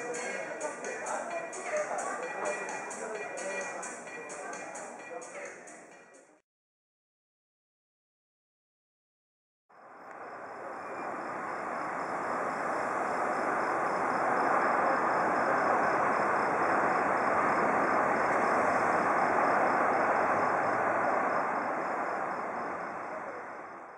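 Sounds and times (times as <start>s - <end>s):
faint high whine: 9.7s - 23.9s
road traffic noise: 9.7s - 23.9s.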